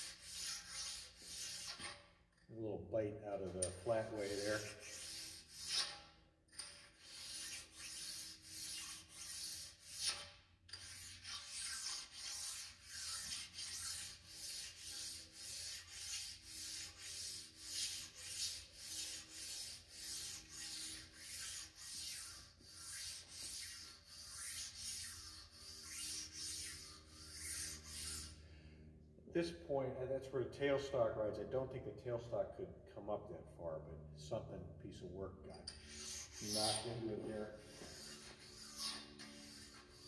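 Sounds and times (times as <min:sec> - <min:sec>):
sharpening stone rubbing on metal: 0:00.0 - 0:02.4, 0:03.6 - 0:28.4, 0:35.5 - 0:40.0.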